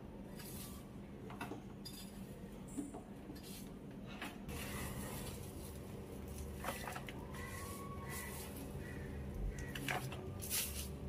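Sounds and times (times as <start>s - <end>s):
hands rustling potting soil: 4.5s - 11.0s.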